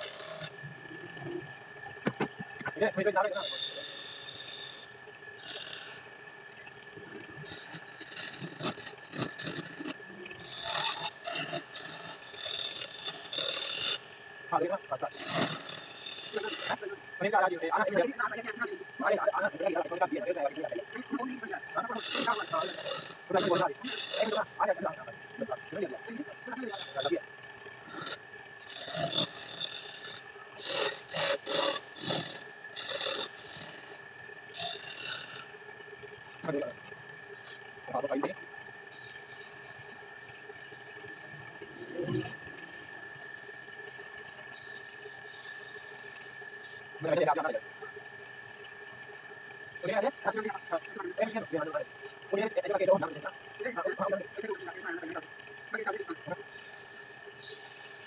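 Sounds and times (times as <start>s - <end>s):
faint steady whine: 0.0s - 58.0s
chisel scraping spinning wood: 7.5s - 14.0s
turning tool rasping on wood: 7.5s - 14.1s, 21.9s - 24.4s.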